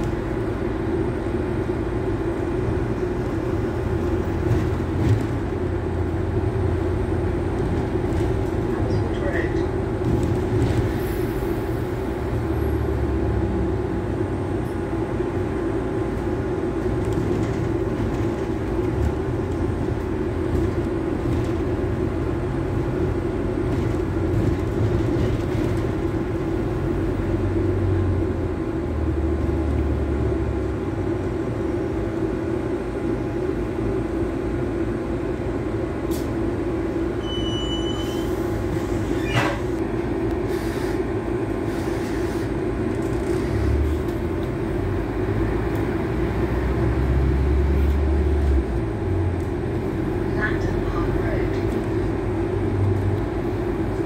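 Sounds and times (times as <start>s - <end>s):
bus engine drone: 0.0s - 54.0s
short high beep: 37.2s - 38.3s.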